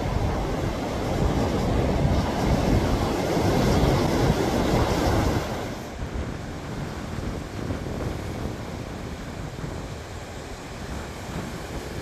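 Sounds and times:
rough surf breaking on shore: 0.0s - 12.0s
wind buffeting microphone: 0.0s - 12.0s.

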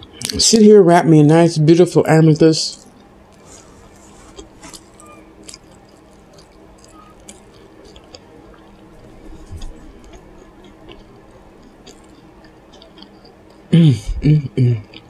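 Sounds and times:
faint steady hum: 0.0s - 15.0s
wet chewing with clicks: 2.8s - 13.7s.

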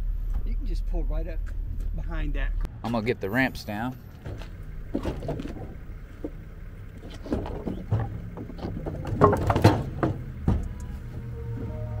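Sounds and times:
wood clattering: 4.1s - 11.7s
wooden boards knocking: 4.2s - 11.3s.

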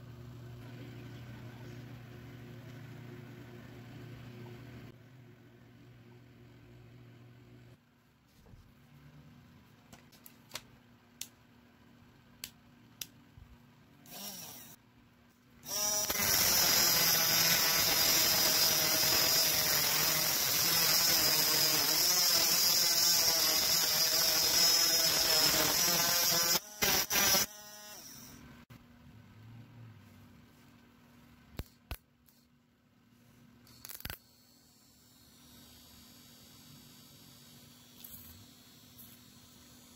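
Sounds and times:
grinder disc grinding steel: 15.7s - 28.4s.

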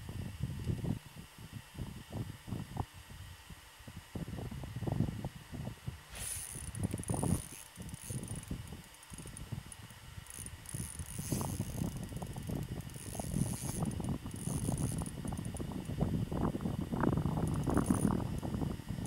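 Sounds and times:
fishing reel gear whine: 6.0s - 19.0s
reel ratcheting: 6.1s - 16.0s, 17.1s - 18.6s.

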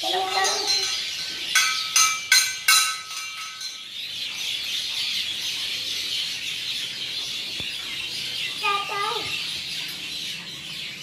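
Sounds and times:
metal bell ringing: 0.0s - 4.1s
birds chirping: 0.0s - 11.0s.

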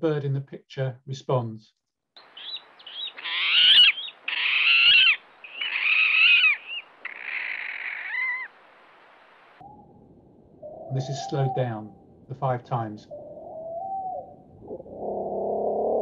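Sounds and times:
bird squealing calls: 2.2s - 8.6s, 10.6s - 11.9s.

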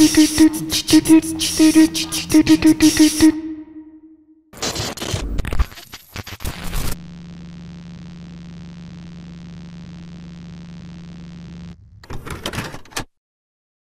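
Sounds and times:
crackling static bursts: 4.6s - 12.1s
electrical hum with hiss: 7.0s - 11.9s.

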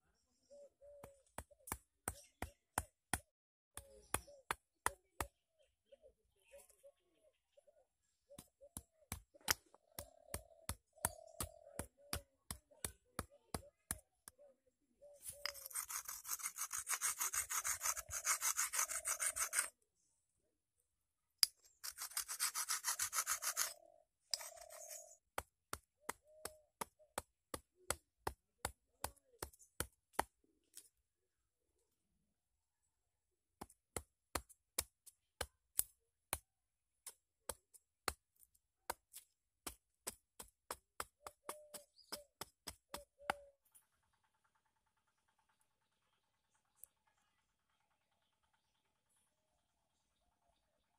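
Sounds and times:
stone scraping bamboo stalk: 15.2s - 19.7s, 21.4s - 26.2s.

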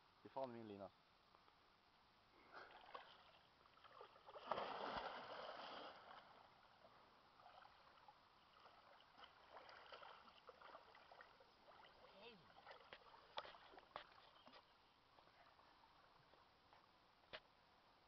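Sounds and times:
swimming and wading splashes: 2.5s - 14.6s
person plunging into water: 2.6s - 6.4s.

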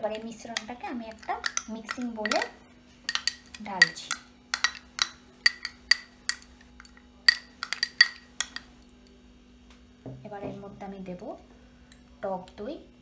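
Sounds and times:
metal spoon clinking on china bowl: 0.4s - 8.8s.

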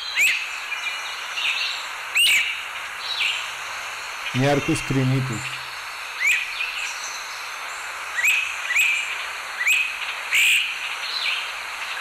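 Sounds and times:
bird whistled calls: 0.0s - 0.5s, 2.2s - 2.5s, 8.2s - 9.0s, 9.6s - 10.6s.

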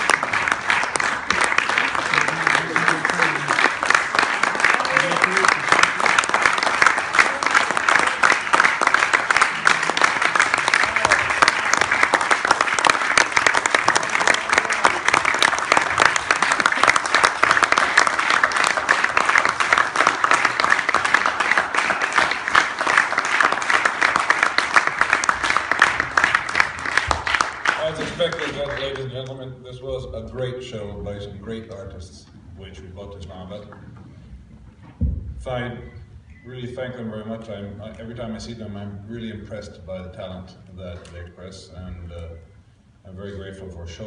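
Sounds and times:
audience applauding: 0.0s - 29.2s.

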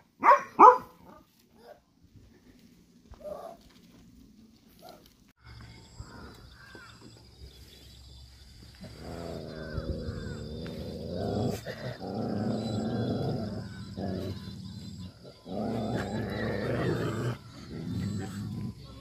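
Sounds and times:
dogs growling: 8.7s - 19.0s.

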